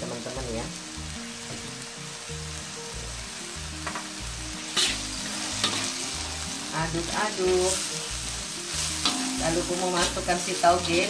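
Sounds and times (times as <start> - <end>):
vegetables sizzling in a wok: 0.0 - 11.0
metal spatula scraping pan: 4.7 - 6.3.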